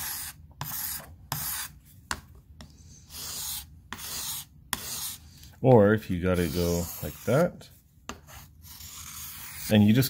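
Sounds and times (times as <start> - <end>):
knife scraping on whetstone: 3.1 - 5.2, 8.3 - 9.8.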